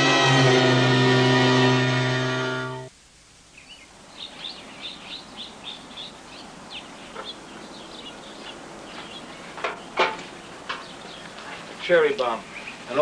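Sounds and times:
steady background hiss: 0.0 - 13.0
birds chirping: 3.5 - 13.0.

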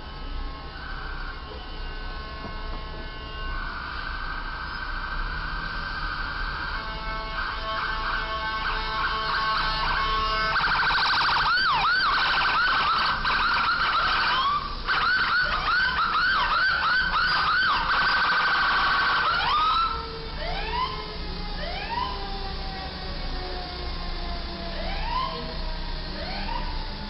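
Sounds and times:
emergency siren yelp: 0.0 - 27.0
pulsing siren warble: 0.0 - 27.0.

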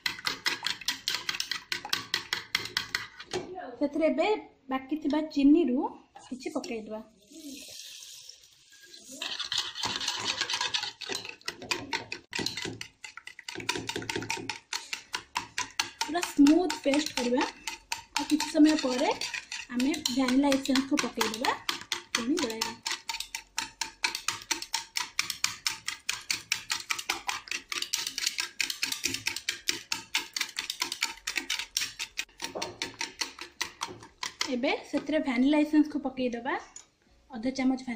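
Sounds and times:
wire whisk beating in bowl: 0.0 - 3.2, 9.2 - 35.0
sugar pouring with faint hiss: 7.2 - 10.0.

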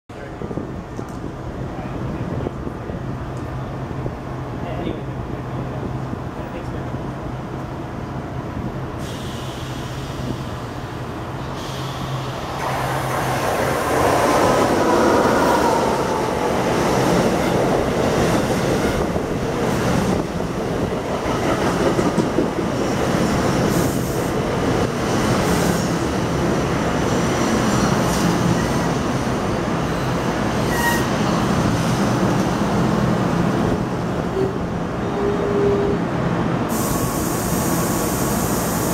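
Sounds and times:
train wheels rumbling on rail: 0.1 - 38.9
high wheel squeals: 30.6 - 31.2.

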